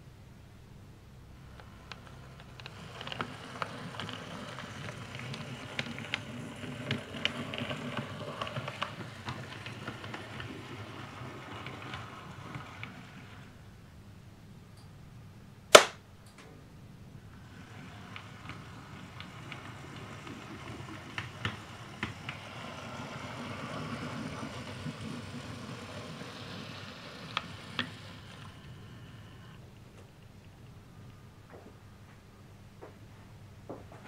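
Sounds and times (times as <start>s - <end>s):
model train motor and wheels rumbling: 1.2s - 14.0s, 17.1s - 29.8s
sharp snap: 15.7s - 16.5s.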